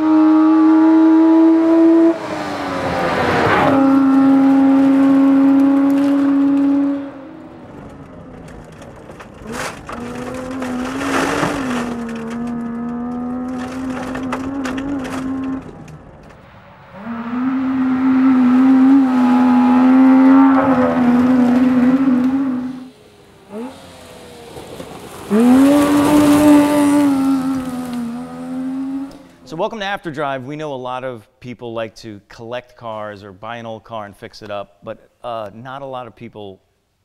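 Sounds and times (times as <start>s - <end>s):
gravel crackling under tyres: 2.5s - 30.3s.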